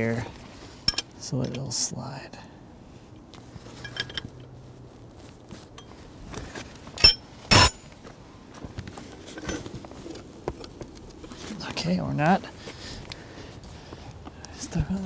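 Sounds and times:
sharp ringing metal clanks: 0:07.0 - 0:07.8.

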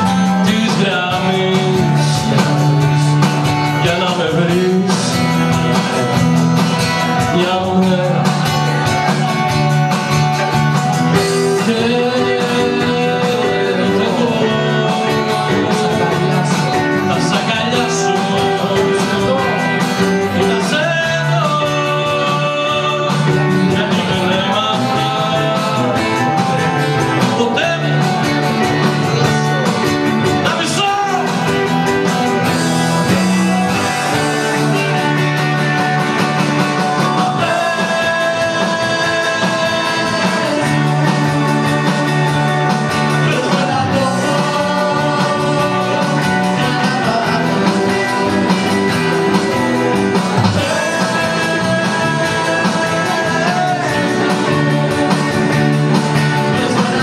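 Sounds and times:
electric guitar playing: 0:00.0 - 0:57.0
strummed acoustic guitar: 0:00.0 - 0:57.0.

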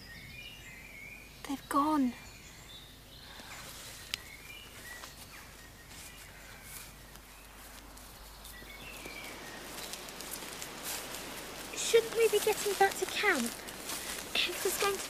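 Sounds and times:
steady hiss: 0:03.2 - 0:15.0
rustling: 0:03.3 - 0:15.0.

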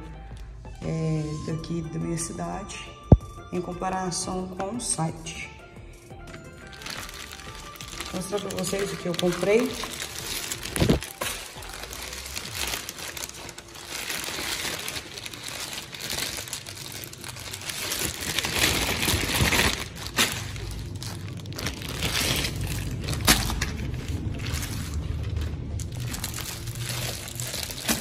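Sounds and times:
plastic bag crinkling: 0:06.3 - 0:28.0.

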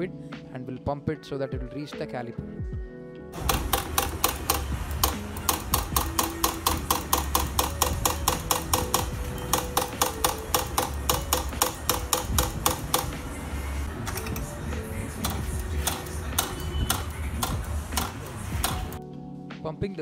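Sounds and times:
fast clicking beat: 0:03.4 - 0:13.2, 0:15.2 - 0:19.0.

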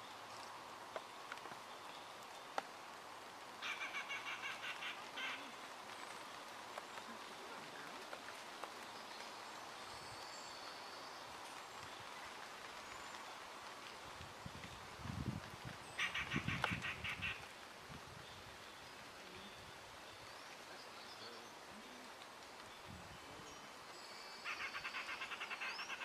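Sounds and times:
bird calling: 0:03.6 - 0:05.7, 0:15.9 - 0:17.4, 0:24.2 - 0:26.0.

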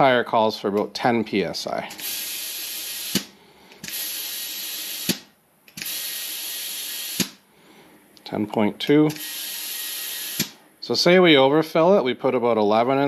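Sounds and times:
compressed air hissing: 0:01.9 - 0:05.2, 0:05.8 - 0:07.4, 0:09.1 - 0:10.6.

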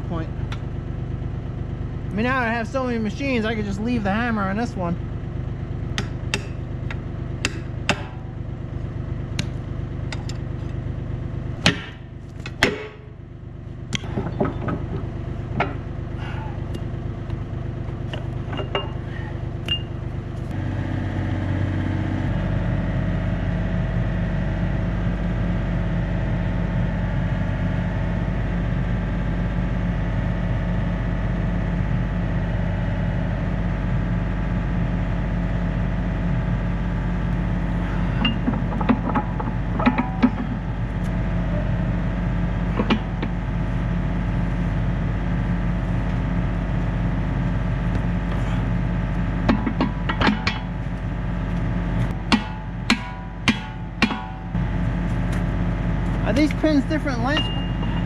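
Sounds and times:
diesel engine idling: 0:00.0 - 0:58.0
metal clinks and knocks: 0:14.0 - 0:15.9, 0:18.0 - 0:19.9, 0:38.1 - 0:41.0, 0:42.7 - 0:43.4, 0:49.4 - 0:50.8, 0:57.4 - 0:58.0.

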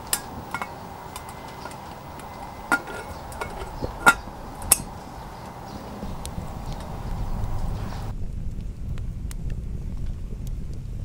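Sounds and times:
metal handle clinking on pot: 0:00.0 - 0:05.0
steady hiss: 0:00.0 - 0:11.0.

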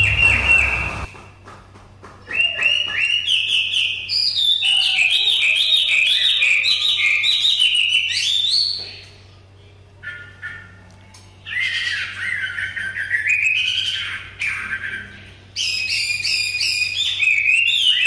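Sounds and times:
bird singing whistled phrases: 0:00.0 - 0:01.1, 0:02.3 - 0:09.1, 0:11.4 - 0:18.0.

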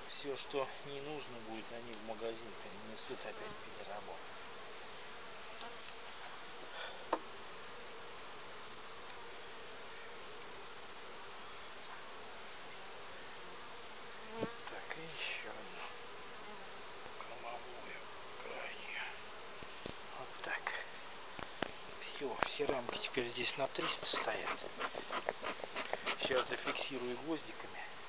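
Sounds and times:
honeybees humming: 0:00.0 - 0:28.0
wooden hive frames knocking: 0:23.7 - 0:27.0.

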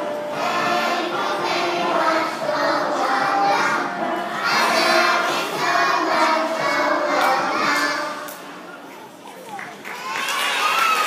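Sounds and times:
children singing together: 0:00.0 - 0:08.5.

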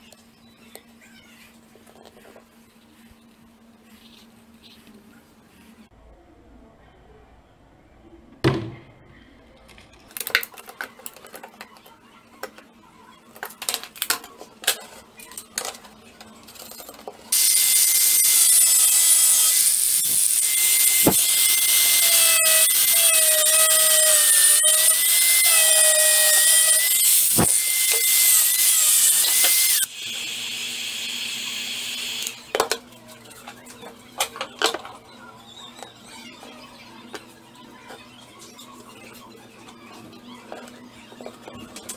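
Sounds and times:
power tool whining: 0:17.3 - 0:32.6.

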